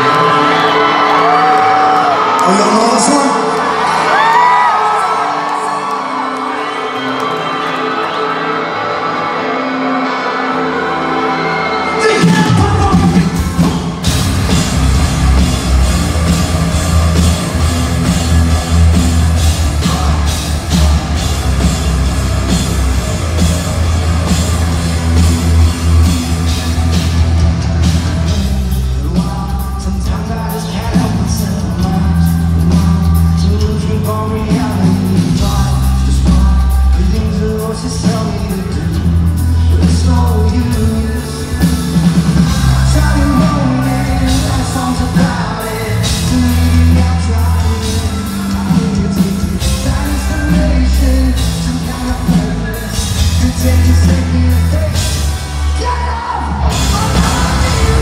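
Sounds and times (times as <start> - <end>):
live rock band: 0.0 - 58.0
person singing: 15.2 - 22.6, 27.8 - 58.0.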